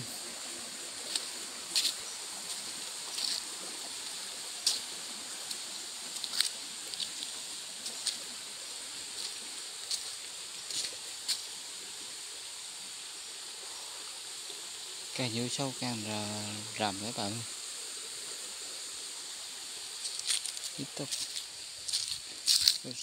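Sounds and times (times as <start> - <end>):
background hiss: 0.0 - 23.0
high insect drone: 0.0 - 23.0
footsteps crunching through dry leaves: 1.0 - 8.2, 9.1 - 11.5, 20.0 - 23.0.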